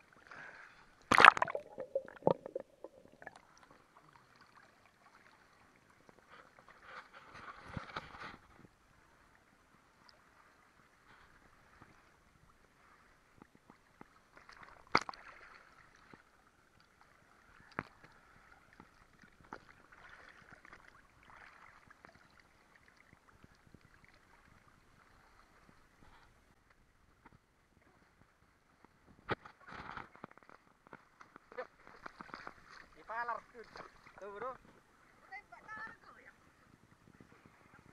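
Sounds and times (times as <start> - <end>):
lake water lapping: 17.0 - 26.1, 31.1 - 36.6.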